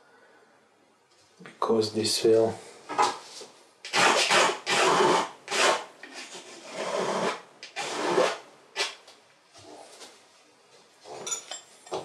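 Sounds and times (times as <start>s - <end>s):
painting tool scraping canvas: 4.1s - 9.0s.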